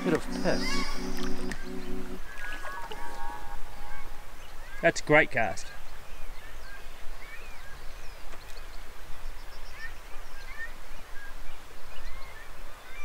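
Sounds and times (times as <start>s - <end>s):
birds chirping and whistling: 0.0s - 4.8s.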